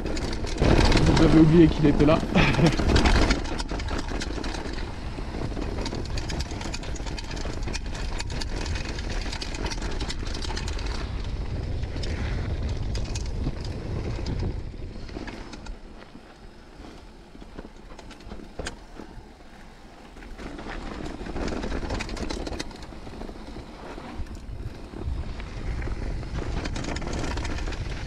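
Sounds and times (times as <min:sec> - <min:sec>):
wind on microphone: 0:00.0 - 0:15.8, 0:24.0 - 0:28.0
bike clicking and rattling: 0:00.0 - 0:28.0
tyres rumbling on gravel: 0:00.0 - 0:28.0.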